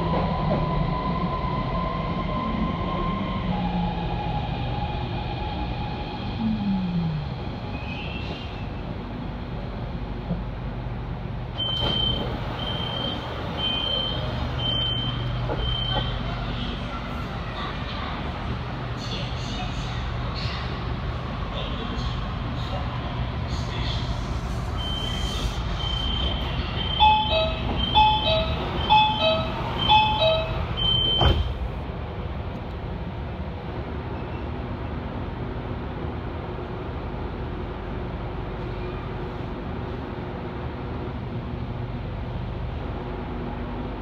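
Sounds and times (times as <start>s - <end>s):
electric train hum: 0.0s - 44.0s
train doors thudding shut: 11.6s - 16.3s, 26.1s - 31.7s
high-pitched warning beeps: 24.8s - 31.4s.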